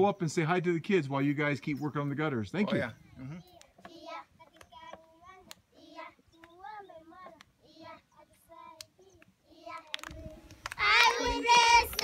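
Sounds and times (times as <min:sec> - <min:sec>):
children singing: 0:10.8 - 0:12.0.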